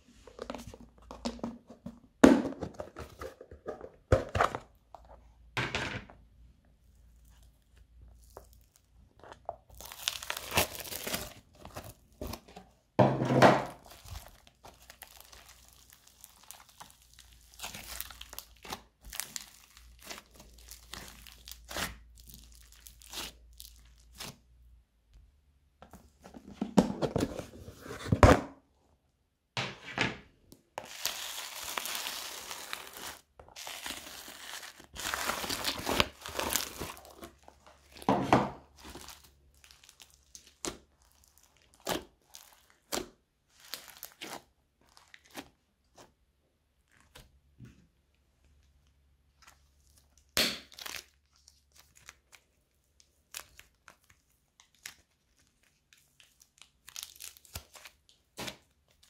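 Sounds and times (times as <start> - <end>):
slime squishing: 6.7 - 12.8, 13.7 - 24.6, 30.8 - 59.0.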